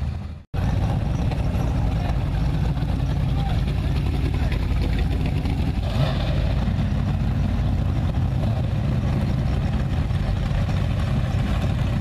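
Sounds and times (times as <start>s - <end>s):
car engines running at low revs: 0.0s - 12.0s.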